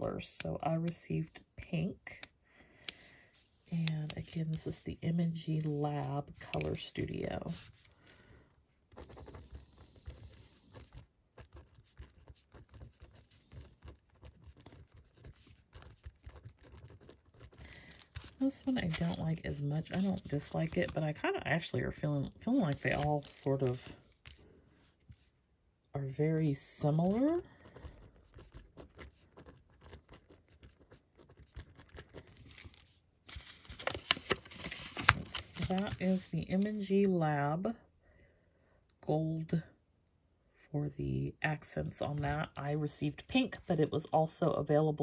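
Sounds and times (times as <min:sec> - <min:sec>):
pen scratching on paper: 0:08.9 - 0:18.4, 0:27.0 - 0:32.4
paper handling taps: 0:32.4 - 0:36.7.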